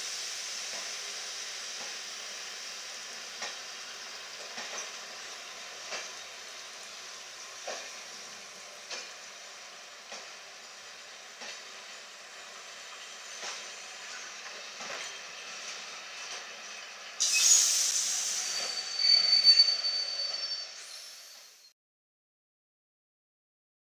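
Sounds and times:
train wheels clicking over rail joints: 3.3s - 3.8s, 4.4s - 5.2s, 5.8s - 6.4s, 7.2s - 9.3s, 10.0s - 10.5s, 11.3s - 11.9s, 12.5s - 17.5s
high steady squeal: 17.2s - 21.7s
loud hiss: 17.2s - 21.7s.

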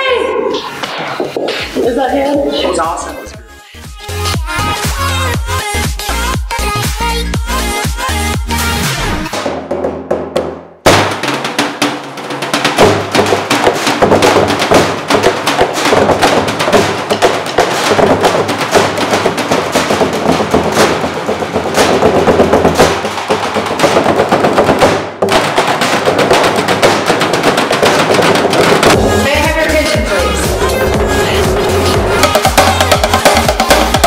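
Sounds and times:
drumming on metal cans: 9.3s - 34.0s.

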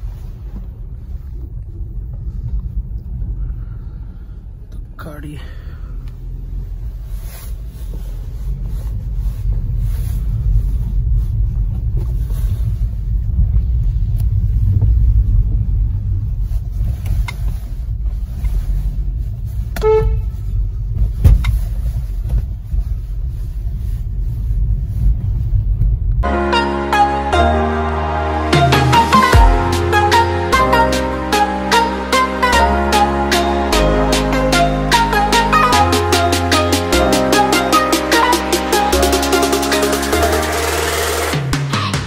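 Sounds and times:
car engine and road rumble: 0.0s - 42.0s
car horn toot: 19.8s - 20.4s
music: 26.2s - 42.0s.

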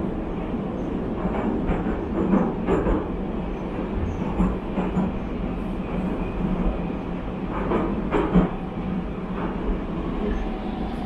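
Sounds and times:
train rumbling in tunnel: 0.0s - 11.0s
track clacks: 1.1s - 5.3s, 7.4s - 8.6s.

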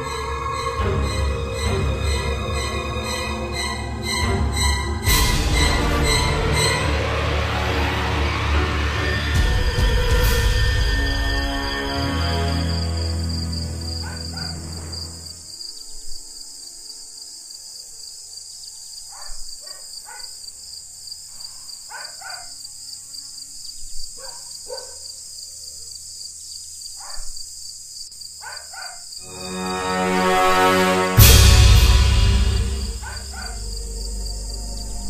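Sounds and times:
high insect chirping: 9.4s - 30.3s, 32.3s - 35.0s
low hum: 31.2s - 35.0s.

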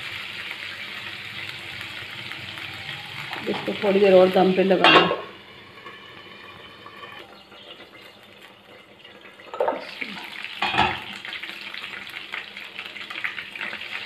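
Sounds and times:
meat sizzling in a pan: 0.0s - 14.0s
metal lid clanking: 4.8s - 6.0s, 9.4s - 11.1s.

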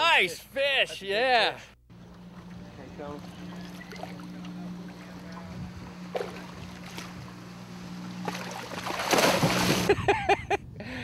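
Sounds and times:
boat motor idling: 1.9s - 9.9s
fish splashing at surface: 8.2s - 9.9s.

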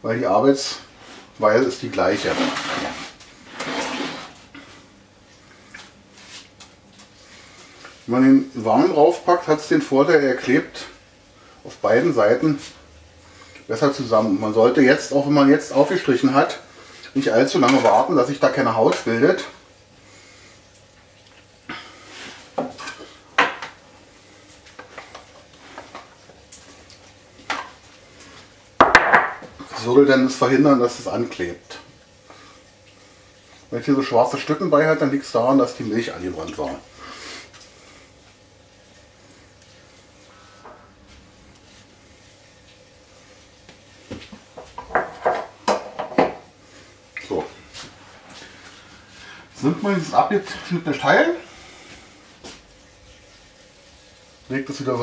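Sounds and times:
metal utensils and baking tray clattering: 17.6s - 18.1s.

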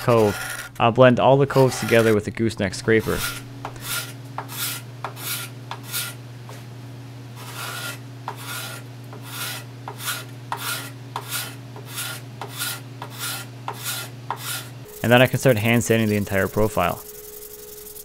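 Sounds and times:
scraper rasping on wood: 3.0s - 6.2s, 7.4s - 14.7s.

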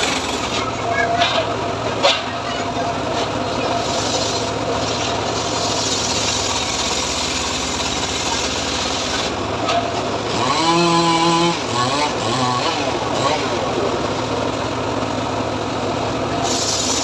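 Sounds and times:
saw engine pitched tone: 0.0s - 14.8s
log saw rasping hiss: 3.2s - 9.3s, 16.4s - 17.0s.

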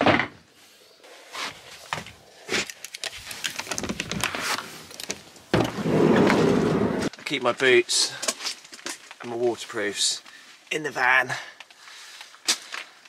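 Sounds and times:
handling knocks and clicks: 1.9s - 6.4s.

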